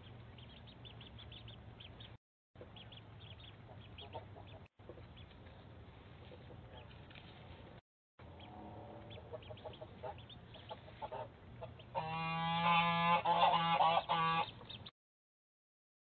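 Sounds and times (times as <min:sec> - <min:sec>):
ducklings peeping: 0:00.0 - 0:07.2, 0:08.2 - 0:14.9
goose honking: 0:11.0 - 0:14.5.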